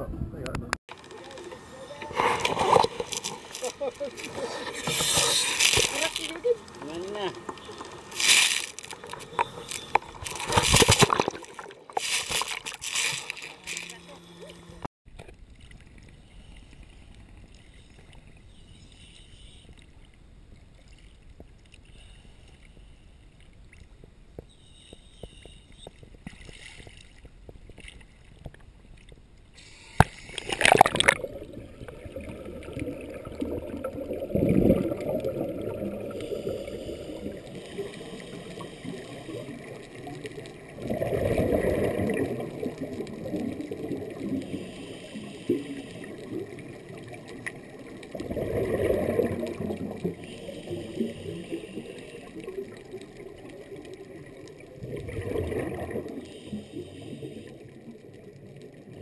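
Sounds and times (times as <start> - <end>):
muffled underwater hush: 0.9 - 14.9
water lapping: 0.9 - 14.9
regulator bubbles gurgling: 30.3 - 59.0.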